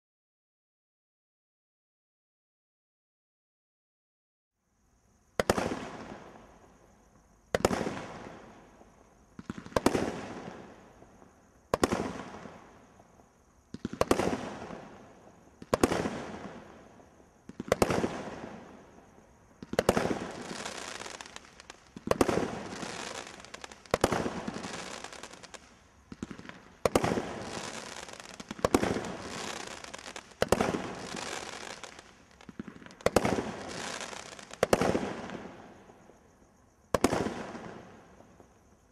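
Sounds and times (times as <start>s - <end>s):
firework crackling: 19.6s - 35.8s.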